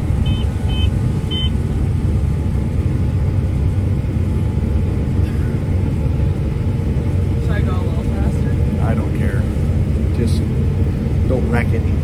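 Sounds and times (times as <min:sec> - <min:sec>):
combine harvester low rumble: 0:00.0 - 0:12.0
short electronic beeps: 0:00.2 - 0:01.6.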